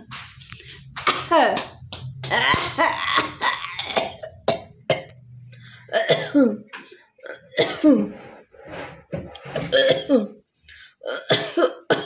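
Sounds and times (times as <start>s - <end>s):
woman clearing throat: 2.3s - 5.1s, 5.9s - 6.7s, 7.3s - 8.1s, 11.0s - 12.0s
woman coughing: 2.3s - 5.1s, 5.9s - 6.7s, 7.3s - 8.1s, 9.7s - 10.4s, 11.1s - 12.0s.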